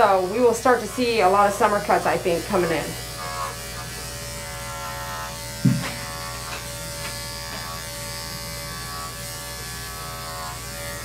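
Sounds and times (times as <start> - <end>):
electric dog clipper buzzing: 0.0 - 11.0
short thump: 5.6 - 6.0.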